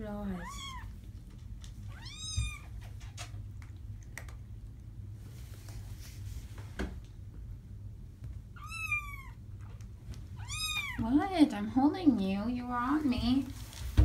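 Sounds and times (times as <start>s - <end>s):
steady low hum: 0.0s - 14.0s
kitten mewing: 8.6s - 9.4s.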